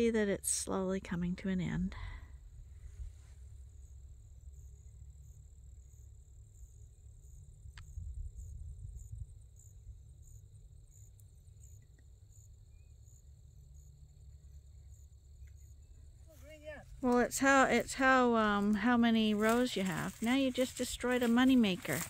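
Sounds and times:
crickets chirping: 0:00.0 - 0:22.0
low rumble: 0:01.4 - 0:04.5.

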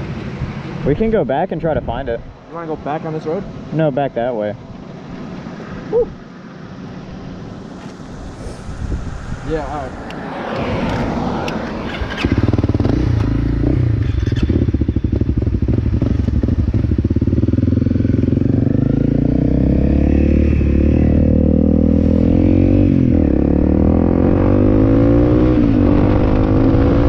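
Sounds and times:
motorcycle engine accelerating: 0:10.3 - 0:27.0.

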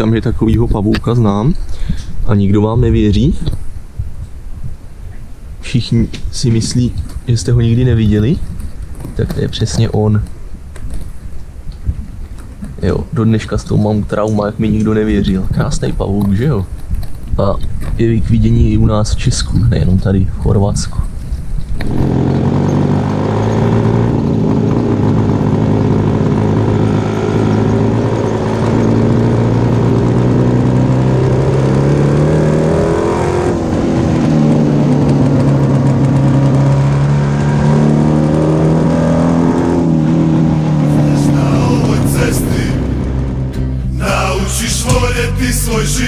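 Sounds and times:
two-stroke motorcycle engines running: 0:21.8 - 0:37.6.

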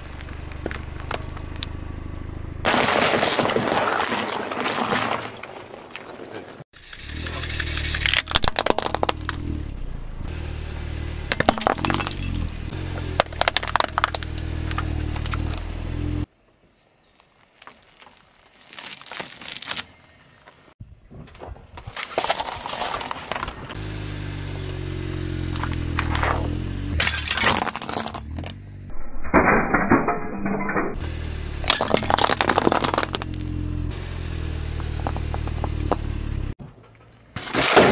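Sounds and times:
car engine rumbling: 0:00.0 - 0:02.8, 0:06.8 - 0:16.3, 0:23.3 - 0:37.3
plastic toy cracking under tyre: 0:08.0 - 0:09.4.

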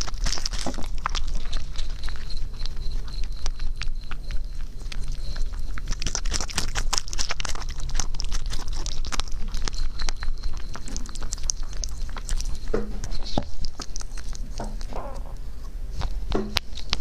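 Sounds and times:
rabbit chewing: 0:00.0 - 0:17.0.

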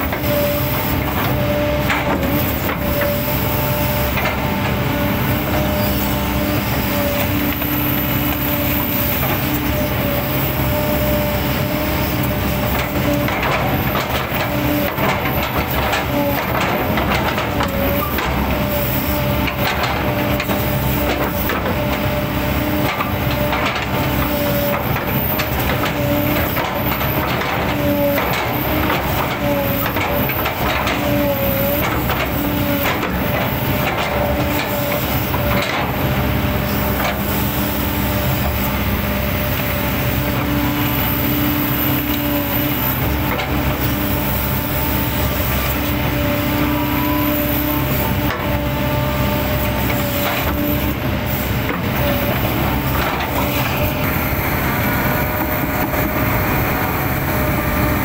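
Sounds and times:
excavator diesel engine running: 0:00.0 - 0:58.0
hydraulic whine: 0:00.0 - 0:58.0.

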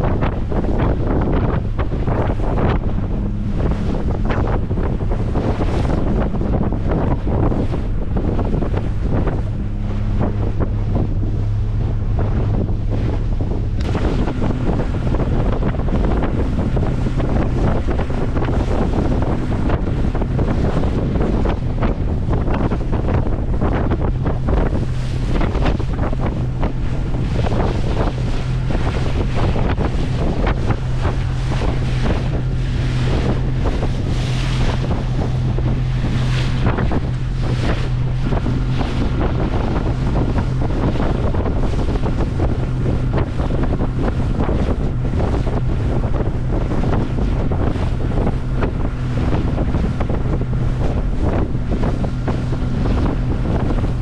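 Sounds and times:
boat engine droning: 0:00.0 - 0:54.0
water rushing along hull: 0:00.0 - 0:54.0
wind buffeting microphone: 0:00.0 - 0:54.0.

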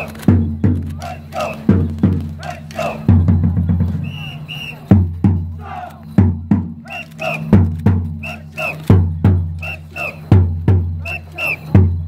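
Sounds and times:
group of voices chanting: 0:00.0 - 0:03.3, 0:05.5 - 0:06.2, 0:06.8 - 0:09.0, 0:09.6 - 0:11.8
booming drum beats: 0:00.0 - 0:12.0.

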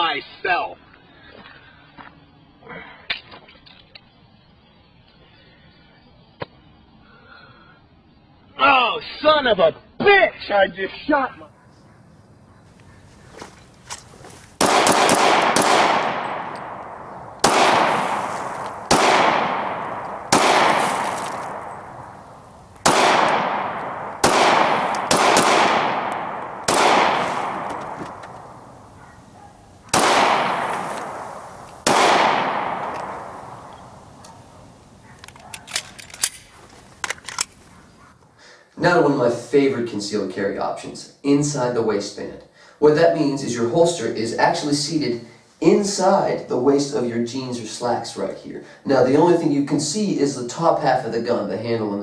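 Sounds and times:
handgun shots echoing: 0:14.6 - 0:37.5.

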